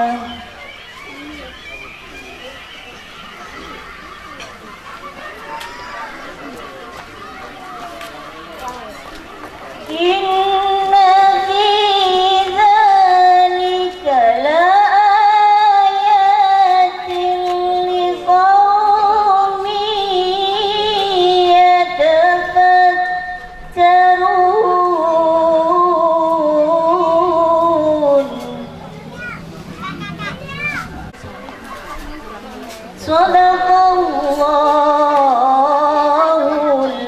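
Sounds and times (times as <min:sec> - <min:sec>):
woman chanting into a microphone: 0:00.0 - 0:00.5, 0:09.8 - 0:28.8, 0:33.0 - 0:37.0.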